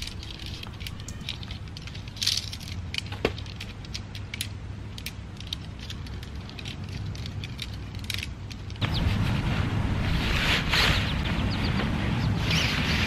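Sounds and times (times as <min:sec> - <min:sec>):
tent poles clicking together: 0:00.0 - 0:08.8.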